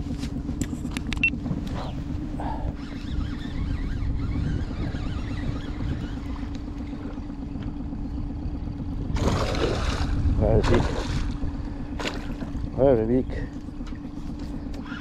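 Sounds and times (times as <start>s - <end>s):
wind and water rumble: 0.0s - 15.0s
faint wavering high chirps: 1.2s - 7.1s.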